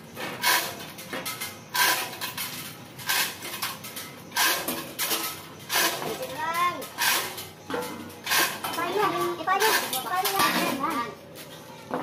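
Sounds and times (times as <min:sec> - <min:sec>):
chain hoist clinking and rattling: 0:08.1 - 0:11.0.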